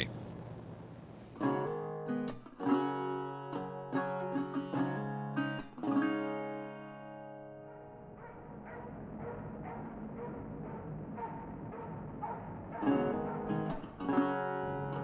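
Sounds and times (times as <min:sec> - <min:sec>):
acoustic guitar playing: 0:01.4 - 0:08.5, 0:12.8 - 0:15.0.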